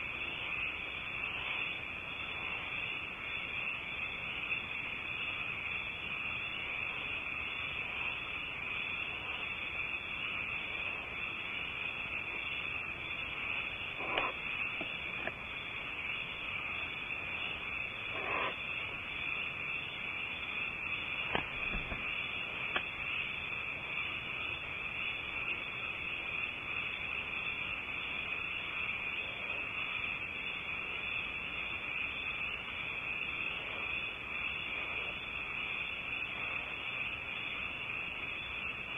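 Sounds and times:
owl hissing: 14.0 - 14.4, 18.1 - 18.6.

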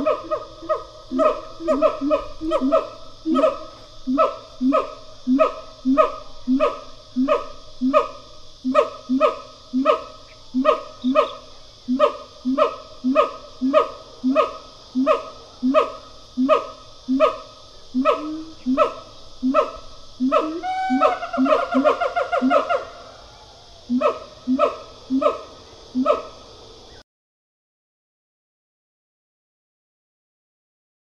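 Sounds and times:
gibbons hooting: 0.0 - 17.4, 18.0 - 23.1.

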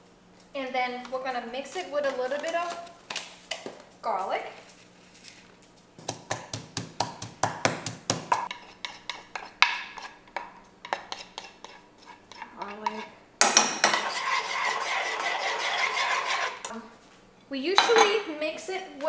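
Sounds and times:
pestle pounding in wooden mortar: 6.0 - 11.5
spoon scraping paste from mortar: 8.4 - 10.2, 10.8 - 13.1, 14.0 - 16.7
metal spoon scraping saucepan: 10.8 - 13.1, 13.8 - 16.7.

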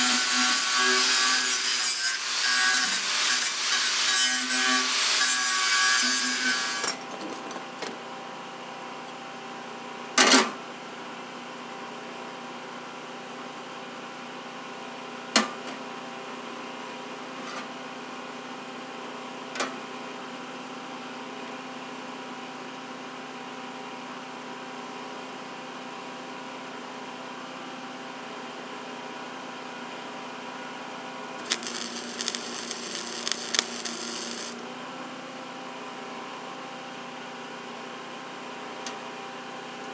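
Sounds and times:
crackling welding: 0.0 - 6.8, 31.4 - 34.6
welder hum: 0.0 - 6.9, 31.4 - 34.8
angle grinder spinning down: 31.4 - 34.6.

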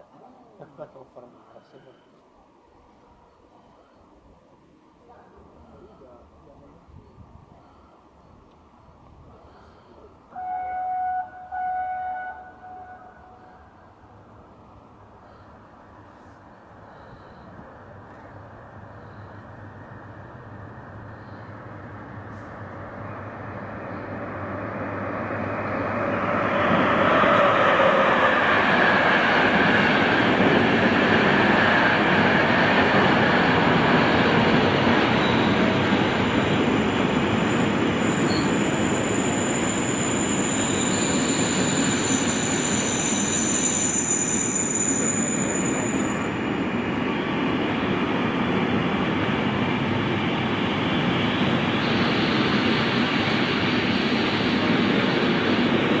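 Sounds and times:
freight train rumbling on rails: 5.1 - 56.0
high-pitched wheel squeals: 35.0 - 46.4.

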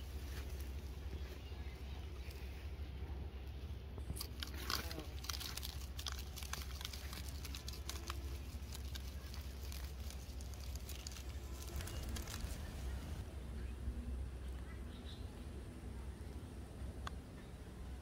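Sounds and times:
steady low rumble: 0.0 - 18.0
seasoning grains pattering: 4.4 - 12.7.

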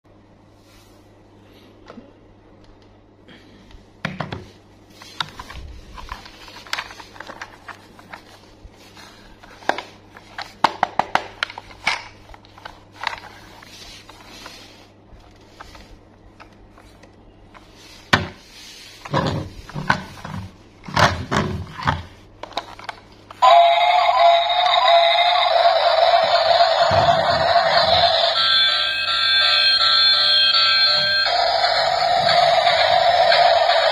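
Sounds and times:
electronic alarm-like toy tune: 23.4 - 33.9.

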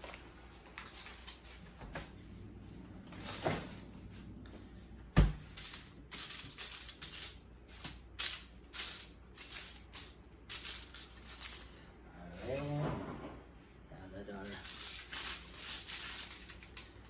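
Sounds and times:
aluminium foil crinkling: 0.0 - 1.7, 5.5 - 11.9, 14.4 - 17.0.

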